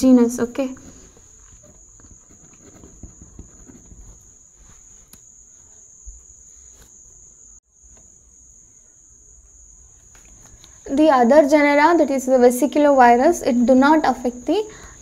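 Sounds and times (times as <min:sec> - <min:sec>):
pen writing on paper: 0:00.9 - 0:04.4.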